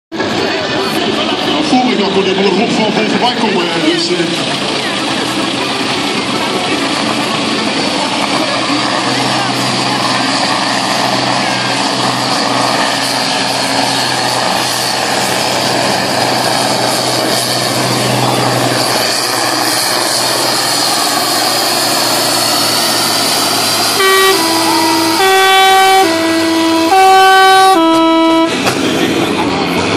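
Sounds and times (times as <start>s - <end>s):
tractor diesel engine under load: 0.1s - 29.9s
two-tone horn: 23.6s - 28.6s.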